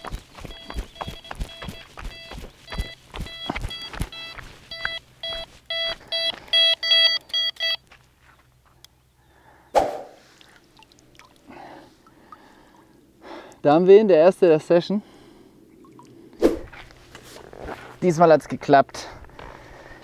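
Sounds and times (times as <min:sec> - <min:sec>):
electronic bite alarm beeping: 0:00.5 - 0:07.8.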